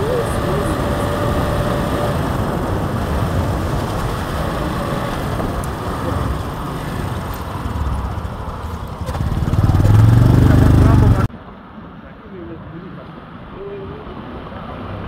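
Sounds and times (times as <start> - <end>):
wind buffeting microphone: 0.0 - 11.3
motorcycle road noise: 0.0 - 15.0.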